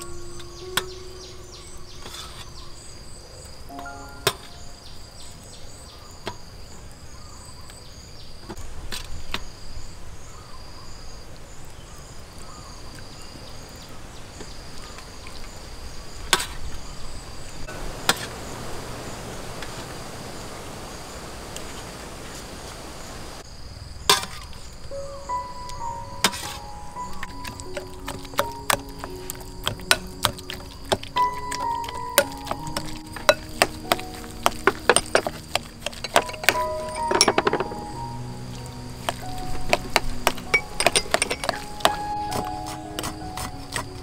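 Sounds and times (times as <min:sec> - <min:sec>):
insects chirping: 0:00.0 - 0:44.0.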